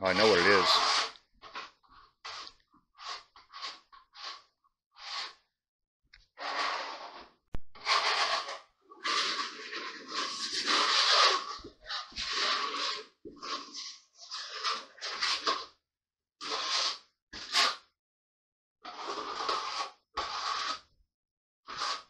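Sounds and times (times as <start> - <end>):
hand trowel scraping plywood: 0.0 - 5.5, 6.2 - 15.8, 16.4 - 17.9, 18.8 - 21.0, 21.6 - 22.0.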